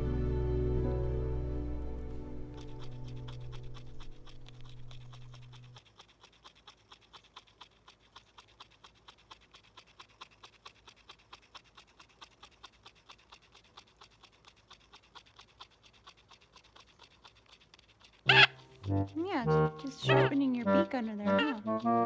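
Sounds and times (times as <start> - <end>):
background music: 0.0 - 3.8, 18.3 - 22.0
parrot grinding its beak: 2.0 - 22.0.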